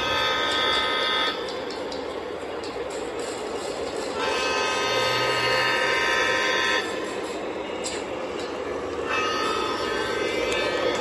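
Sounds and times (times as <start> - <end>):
model train horn blast: 0.0 - 1.5, 4.2 - 7.1, 9.0 - 11.0
model trains rumbling: 0.0 - 11.0.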